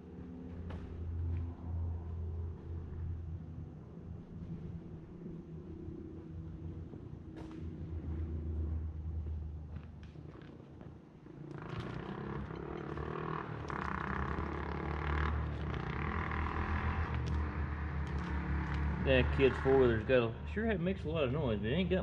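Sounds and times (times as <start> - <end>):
four-wheeler engine running: 11.4 - 22.0.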